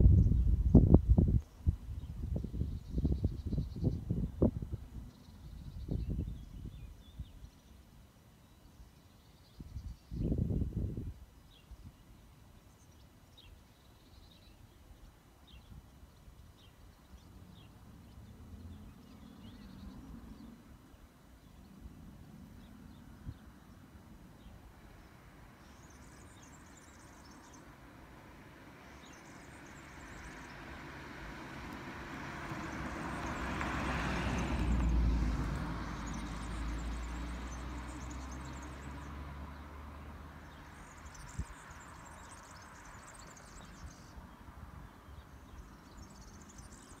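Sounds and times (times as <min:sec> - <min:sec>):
small birds chirping: 0:00.2 - 0:30.8, 0:32.5 - 0:47.0
vehicle passing with deep rumble: 0:17.3 - 0:47.0.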